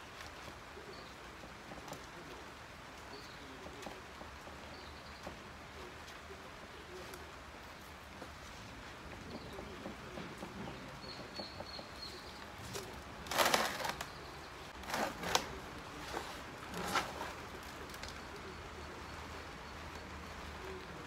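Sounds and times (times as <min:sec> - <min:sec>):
hands rustling plant leaves: 0:11.8 - 0:21.0.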